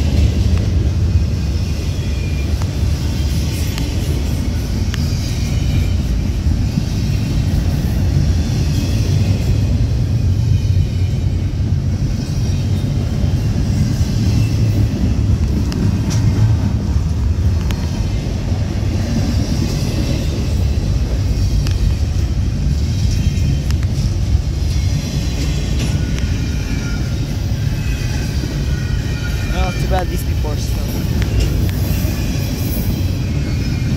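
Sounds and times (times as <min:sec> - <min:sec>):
train wheels rumbling on rails: 0:00.0 - 0:33.9
faint high wheel squeals: 0:01.1 - 0:03.7, 0:24.6 - 0:33.9.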